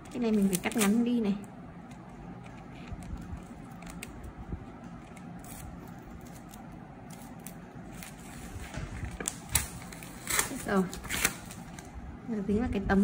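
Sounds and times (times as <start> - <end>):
scissors snipping plastic tape: 0.0 - 1.0, 9.2 - 11.6
tape crinkling: 0.0 - 12.0.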